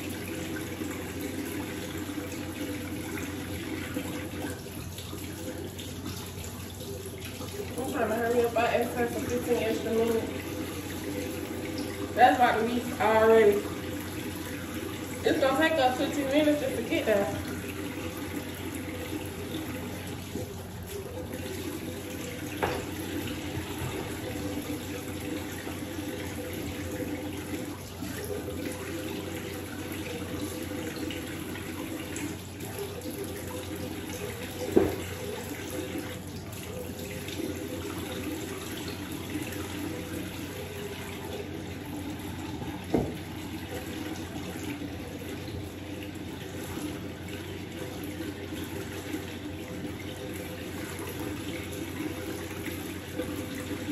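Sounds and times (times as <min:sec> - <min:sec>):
tap water splashing into basin: 0:00.0 - 0:53.9.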